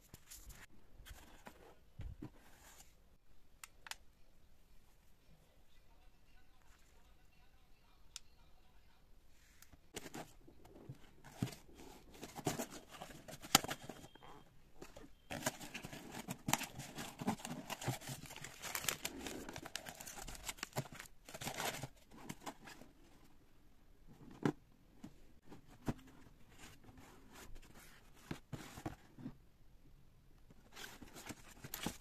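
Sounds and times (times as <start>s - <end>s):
cardboard and paper rustling: 9.9s - 23.2s, 30.5s - 32.0s.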